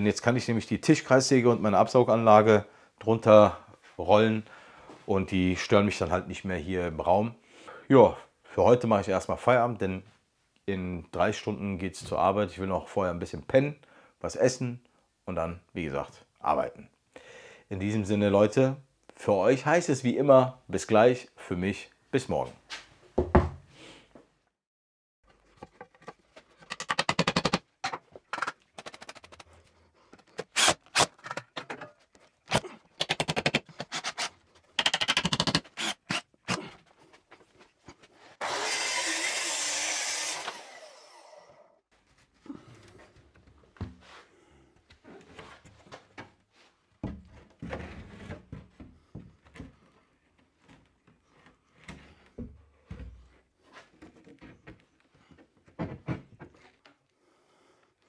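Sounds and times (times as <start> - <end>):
cordless drill rattling: 33.7 - 36.2, 38.4 - 41.2
circular saw cutting board: 38.3 - 41.8
boards scraping and knocking: 47.0 - 56.8.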